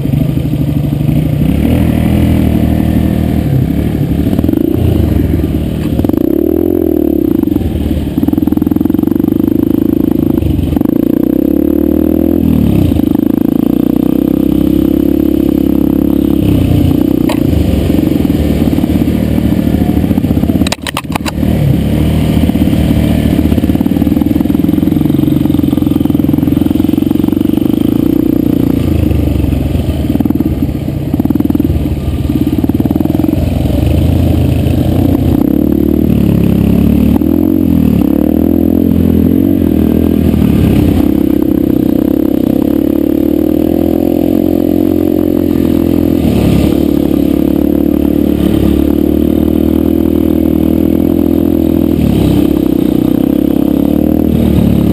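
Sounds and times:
dirt bike engine revving: 0.0 - 54.9
sharp clicks: 20.6 - 21.4.

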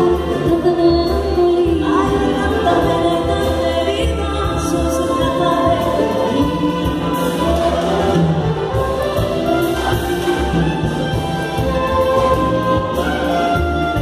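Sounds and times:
women singing into microphones: 0.0 - 8.7
violins and woodwinds: 0.0 - 14.0.

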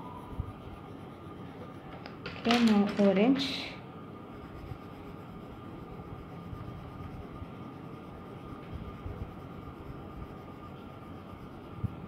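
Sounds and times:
pencil scratching on paper: 4.3 - 12.0.

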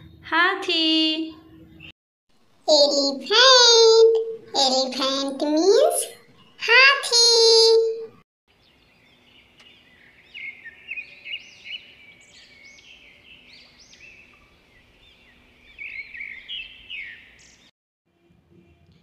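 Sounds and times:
faint outdoor background: 0.0 - 19.0
small birds chirping: 2.7 - 17.7.

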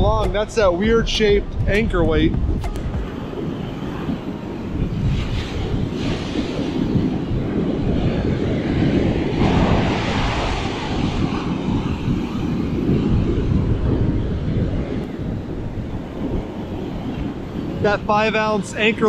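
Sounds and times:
breaking surf: 0.0 - 19.0
wind buffeting microphone: 0.0 - 19.0.

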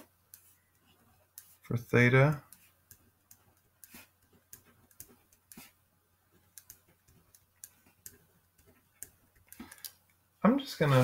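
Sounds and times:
marker pen writing on paper: 0.0 - 10.2.

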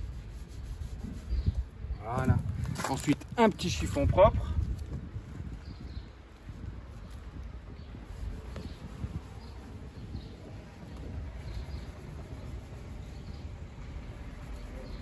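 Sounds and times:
cloth rubbing plastic lens: 0.0 - 1.6
wind rumble on microphone: 0.0 - 15.0.

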